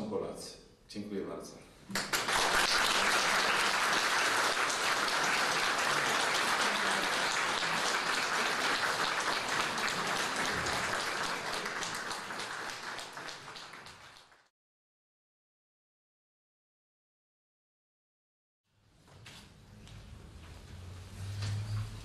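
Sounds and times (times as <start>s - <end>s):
audience applauding: 1.9s - 14.5s.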